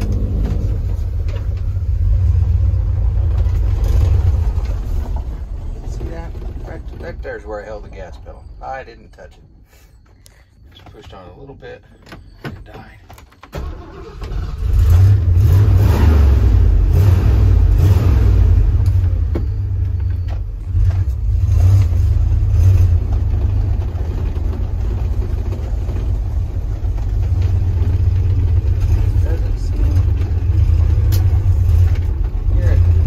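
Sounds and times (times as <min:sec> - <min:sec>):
engine idling with throttle blips: 0:00.0 - 0:15.6, 0:16.3 - 0:33.0
engine cranking and starting: 0:13.3 - 0:16.0.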